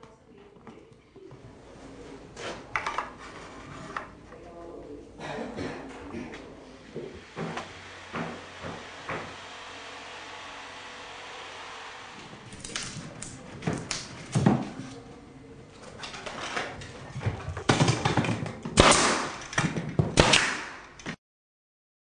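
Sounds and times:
nail gun shots: 18.7 - 21.1.

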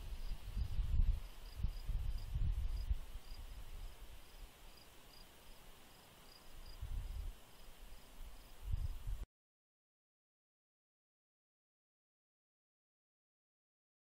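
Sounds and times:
faint high hiss: 0.0 - 9.2
cricket chirping: 0.1 - 8.8.

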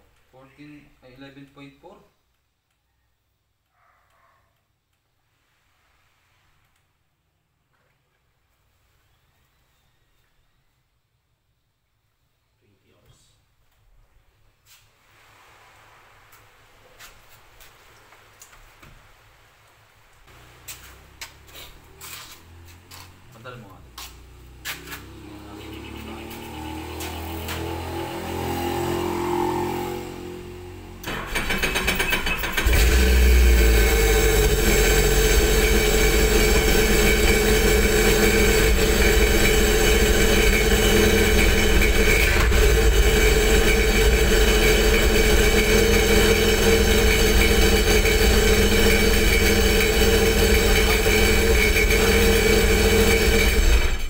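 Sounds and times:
watercraft engine starting: 31.0 - 54.0.

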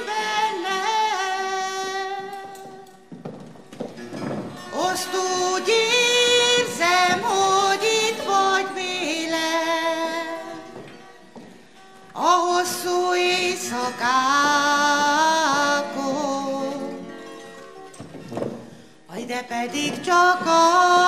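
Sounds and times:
woman singing into microphone: 0.0 - 2.9, 4.7 - 10.7, 12.2 - 17.0, 19.1 - 21.0.

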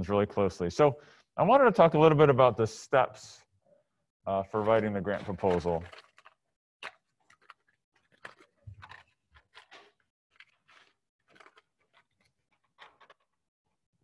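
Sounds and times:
faint rustling of papers: 4.4 - 6.4, 7.2 - 13.4.

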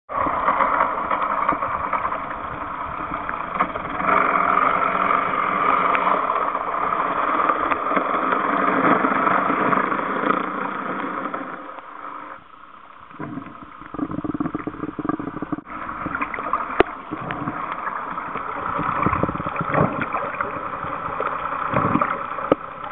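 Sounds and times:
engine-like hum: 0.1 - 10.1
muffled underwater drone: 0.1 - 22.9.

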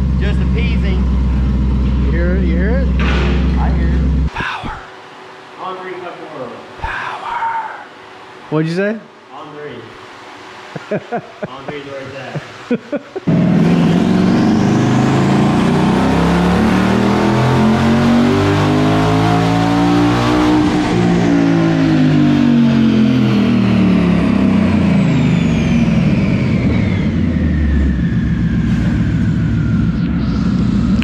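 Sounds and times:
car engine revving: 0.0 - 4.3, 13.2 - 31.0
high whine: 0.0 - 8.5, 9.4 - 31.0.

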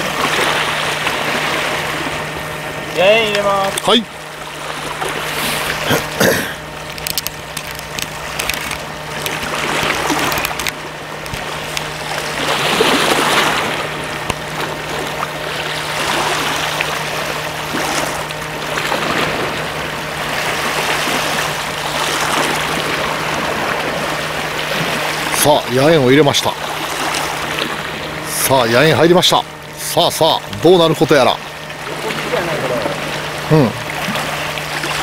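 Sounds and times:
sharp clicks: 6.9 - 11.9.

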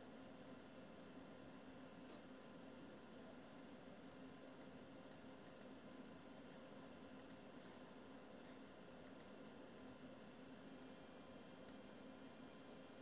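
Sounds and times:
low room hum: 0.0 - 13.0
computer mouse clicks: 4.6 - 5.8, 7.1 - 7.4, 9.0 - 9.4, 10.8 - 11.0, 11.6 - 11.9.

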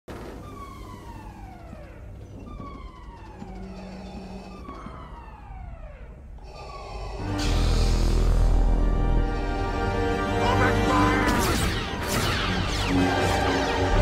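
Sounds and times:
siren-like tone gliding down: 0.2 - 9.4.

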